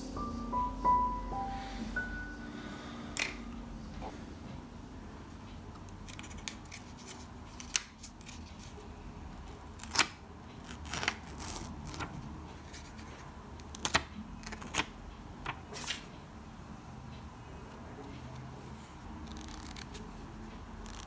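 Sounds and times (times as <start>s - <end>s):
paper rustling and crackling: 18.8s - 21.0s.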